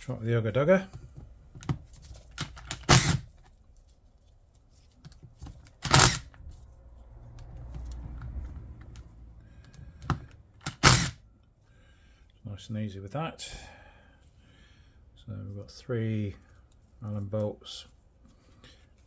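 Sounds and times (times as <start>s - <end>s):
impact driver whirring: 2.4s - 3.3s, 5.8s - 6.4s, 10.0s - 11.2s
impact driver hammering: 2.6s - 3.3s, 5.8s - 6.3s, 10.0s - 11.2s.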